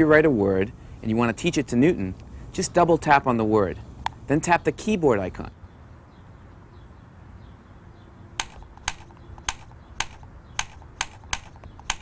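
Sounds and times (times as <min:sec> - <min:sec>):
faint steady hum: 0:00.0 - 0:05.8
stylus tapping on screen: 0:08.4 - 0:12.0.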